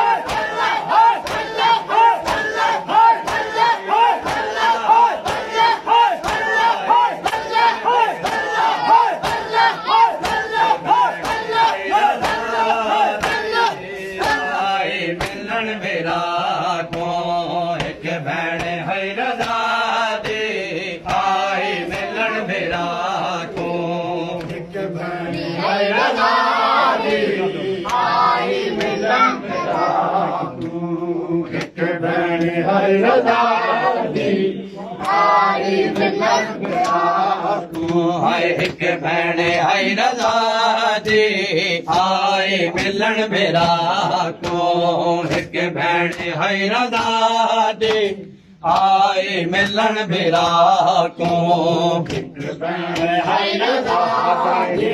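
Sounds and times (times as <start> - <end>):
men chanting together: 0.0 - 54.9
chest-beating slaps: 0.1 - 15.5, 16.3 - 24.7, 35.0 - 49.0, 51.2 - 53.2.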